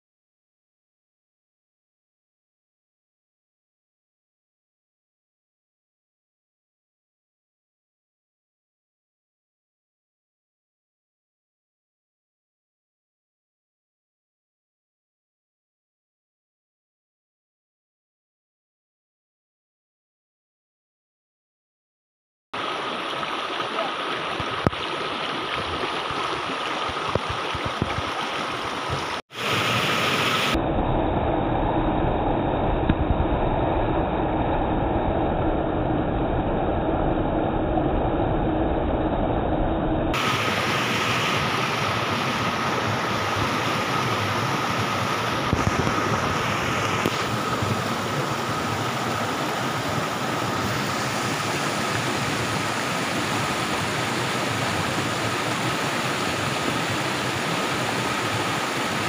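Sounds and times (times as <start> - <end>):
water rushing over stones: 22.6 - 30.6, 40.2 - 59.0.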